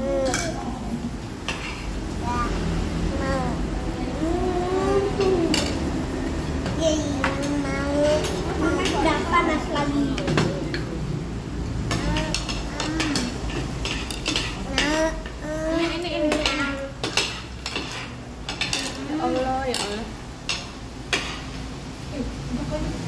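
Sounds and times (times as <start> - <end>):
children's voices: 0.0 - 0.9, 1.6 - 6.0, 6.6 - 10.5, 11.9 - 13.6, 14.6 - 17.2
spoons clinking against plates: 11.9 - 15.3, 16.2 - 21.6.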